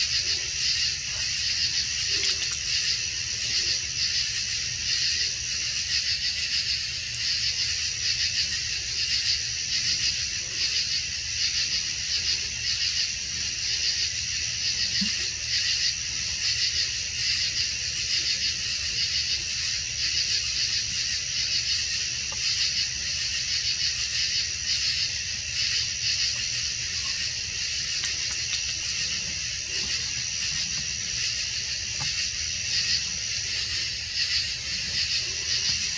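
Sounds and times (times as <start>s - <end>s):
insects trilling: 0.0s - 35.9s.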